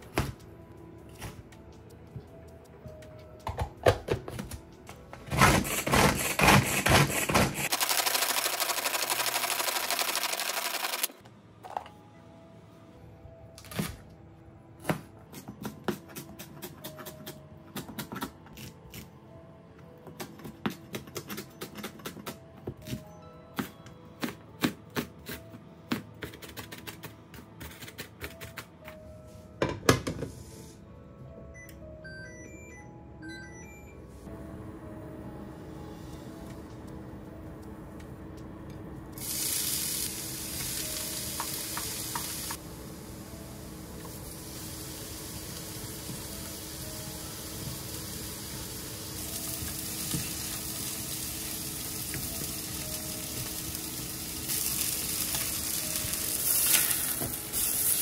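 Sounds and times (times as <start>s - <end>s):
faint background music: 0.0s - 7.7s, 11.1s - 58.0s
manual food chopper clicking whirr: 7.4s - 11.2s.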